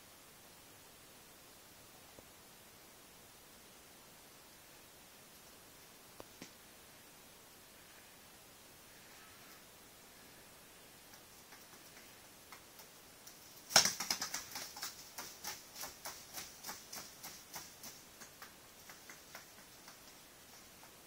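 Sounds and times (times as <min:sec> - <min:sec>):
bird feet clicking on hard floor: 0:11.1 - 0:21.0.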